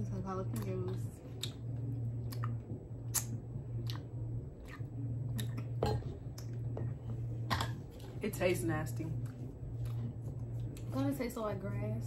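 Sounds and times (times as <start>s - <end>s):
steady low hum: 0.0s - 12.0s
mouth clicks and smacks: 0.6s - 5.7s
person chewing: 1.3s - 6.6s.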